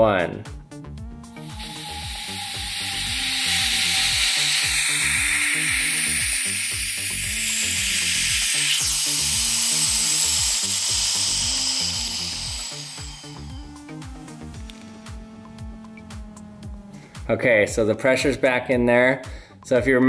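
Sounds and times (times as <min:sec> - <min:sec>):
background music: 0:00.0 - 0:20.0
air hissing into chamber: 0:01.3 - 0:15.2.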